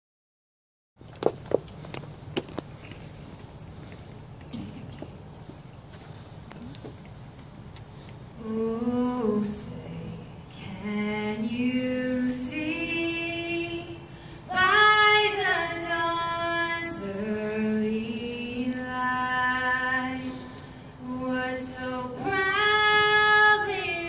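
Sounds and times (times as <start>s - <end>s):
woman singing a cappella: 8.4s - 24.0s.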